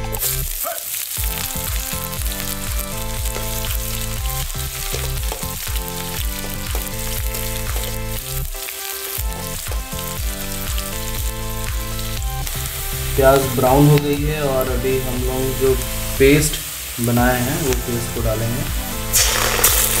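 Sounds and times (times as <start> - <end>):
background music: 0.0 - 20.0
onions frying in oil: 0.0 - 20.0.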